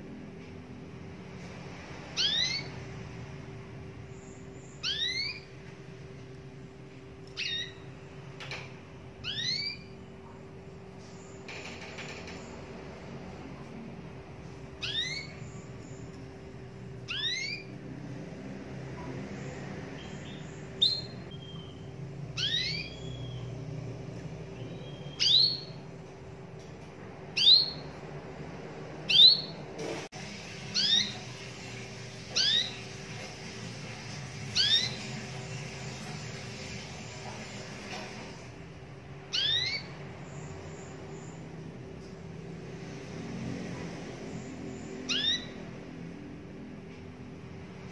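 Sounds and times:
canary call notes: 0:04.7 - 0:05.5, 0:09.2 - 0:10.0, 0:17.1 - 0:17.7, 0:30.7 - 0:33.0, 0:39.3 - 0:39.9, 0:45.0 - 0:45.7.

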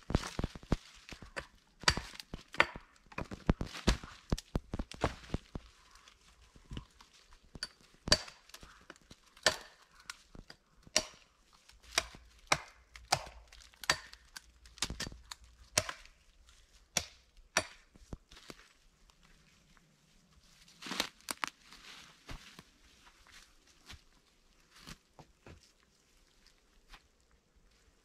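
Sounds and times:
hatchet chopping wood: 0:01.4 - 0:04.0, 0:07.6 - 0:08.6, 0:09.4 - 0:09.8, 0:10.4 - 0:16.1, 0:16.9 - 0:17.9.

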